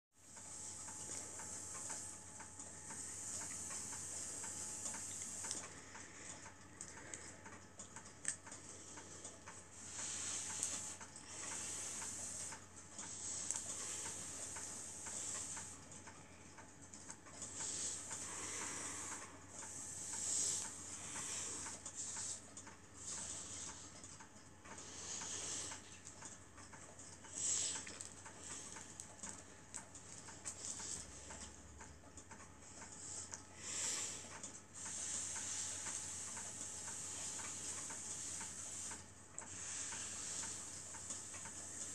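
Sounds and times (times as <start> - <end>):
small mechanism ticking: 0.2 - 41.9
soft hissing: 0.3 - 5.7, 9.7 - 15.8, 17.5 - 23.9, 34.8 - 41.9.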